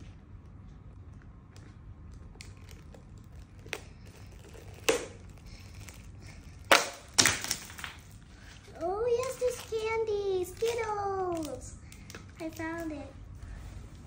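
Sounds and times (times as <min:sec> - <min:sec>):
shell cracking: 0:02.4 - 0:08.2.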